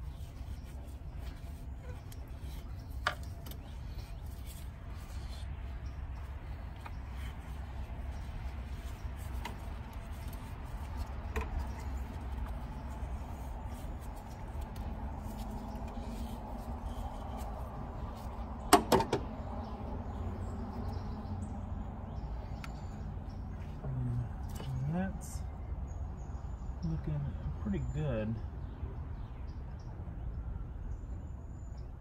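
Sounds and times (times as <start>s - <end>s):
light handling noises: 0.0s - 19.4s
steady low hum: 0.0s - 28.5s.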